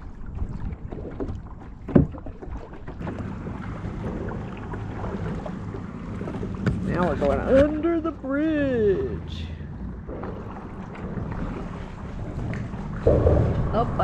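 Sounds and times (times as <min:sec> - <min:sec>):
paddle splashing in water: 0:00.0 - 0:08.8, 0:09.6 - 0:14.0
low hum: 0:03.0 - 0:14.0
wind on microphone: 0:09.8 - 0:14.0
knocks: 0:13.0 - 0:14.0
loud thump: 0:13.0 - 0:14.0.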